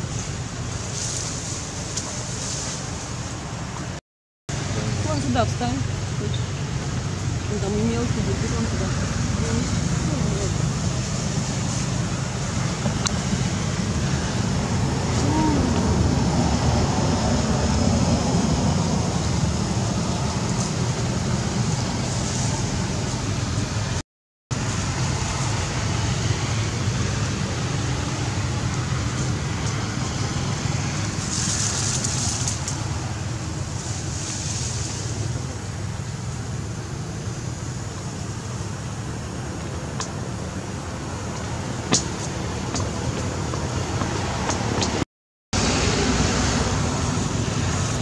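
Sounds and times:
low outdoor rumble: 0.0s - 45.0s
hiss: 33.8s - 35.4s.

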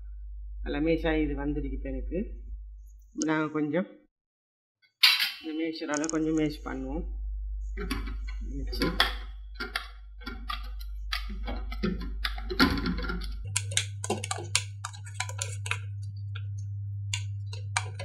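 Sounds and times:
steady low hum: 0.0s - 3.2s, 5.4s - 18.0s
masher clacking in pot: 7.9s - 15.9s, 17.1s - 18.0s.

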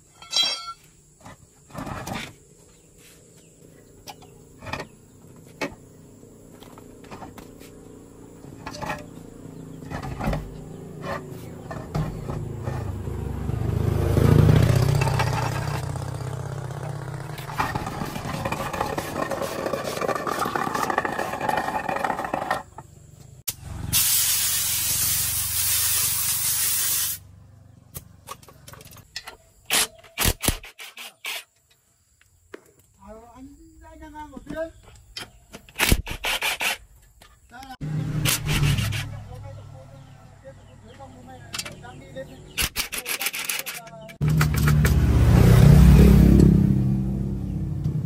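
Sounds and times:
vehicle passing by: 5.9s - 19.6s, 23.5s - 24.0s, 37.8s - 41.4s, 44.2s - 48.0s
loud steady hiss: 23.6s - 27.2s.

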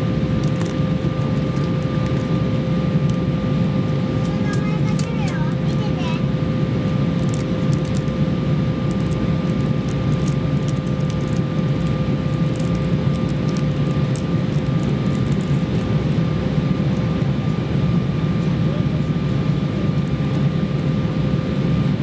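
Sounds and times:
faint constant whine: 0.0s - 22.0s
jet engine and airflow rumble: 0.0s - 22.0s.

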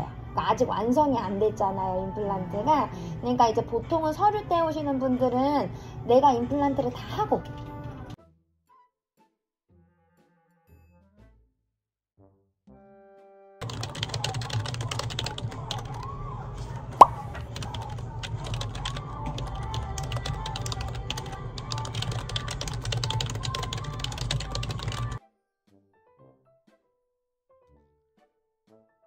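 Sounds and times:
keyboard typing clicks: 13.6s - 16.0s, 17.0s - 25.2s.

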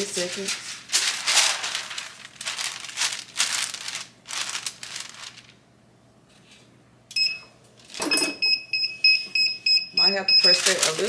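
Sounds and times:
paper rustling and crinkling: 0.0s - 5.6s, 10.4s - 11.0s.

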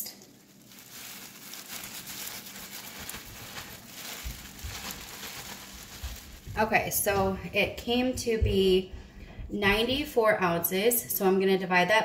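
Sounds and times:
low thumps: 5.8s - 10.2s.

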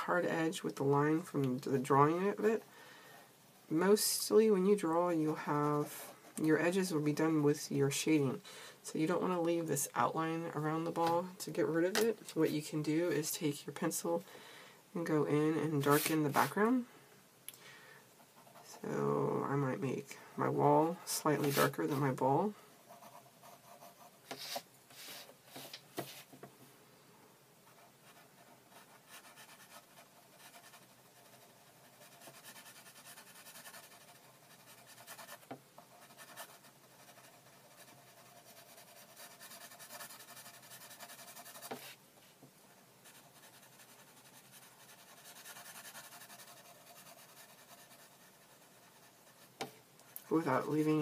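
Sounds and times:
pencil scratching on paper: 21.0s - 22.1s, 22.9s - 26.3s, 27.7s - 42.0s, 43.0s - 51.0s.

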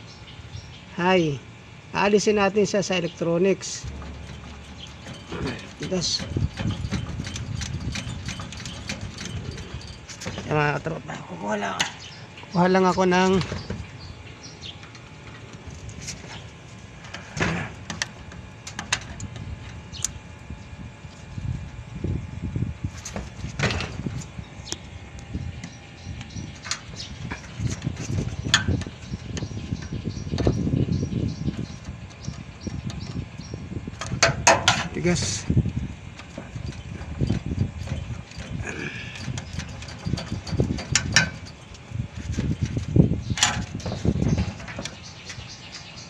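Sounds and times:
low handling rumble: 0.0s - 46.0s
wire scraping: 3.7s - 10.9s, 25.1s - 45.9s
tools clicking and knocking: 39.2s - 41.6s.

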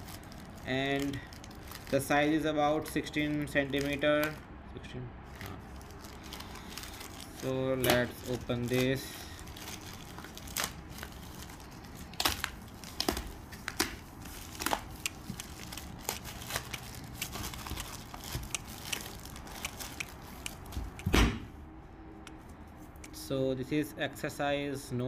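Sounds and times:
plastic bag tearing and crinkling: 0.0s - 4.4s, 5.3s - 20.8s
deep thump: 21.1s - 21.5s.

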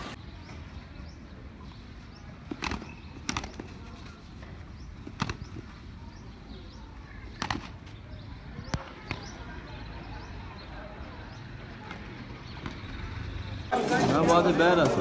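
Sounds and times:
rooster wings beating: 2.4s - 5.8s, 7.3s - 7.9s.

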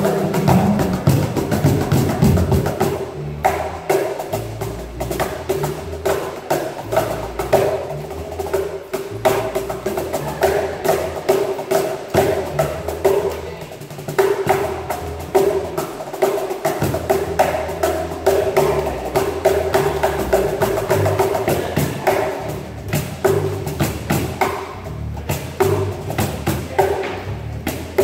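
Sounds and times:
electric bass guitar line: 0.0s - 16.0s, 16.6s - 28.0s
cajons slapped by hand: 0.0s - 28.0s.

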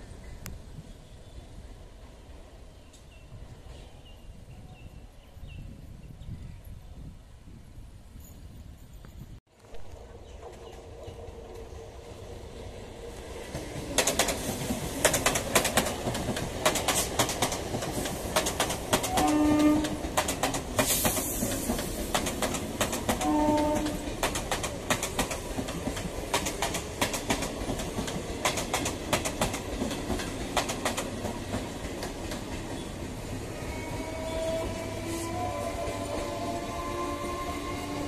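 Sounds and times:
train wheels clattering over rail joints: 13.5s - 32.9s
train horn blasts: 19.1s - 20.1s, 23.2s - 24.1s, 33.5s - 38.0s
brief hiss: 20.8s - 21.7s.

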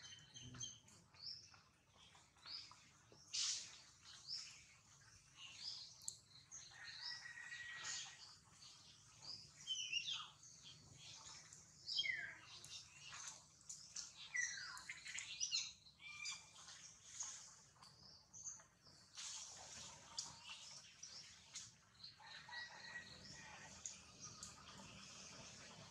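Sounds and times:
birds chirping: 0.0s - 25.9s.

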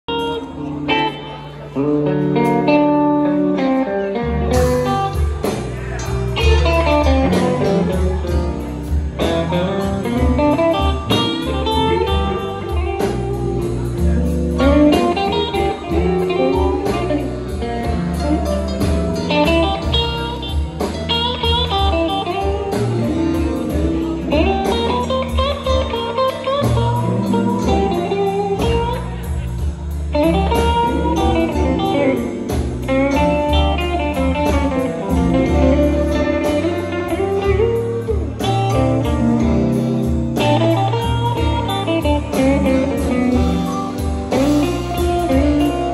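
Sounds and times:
electric guitars: 0.0s - 45.9s
drum kit with cymbal beat: 0.1s - 45.9s
heavy bass line: 4.3s - 45.9s.

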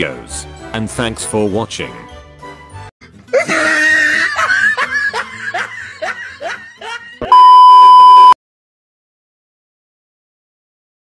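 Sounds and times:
person laughing: 3.3s - 7.4s
loud steady high beep: 7.3s - 8.4s.

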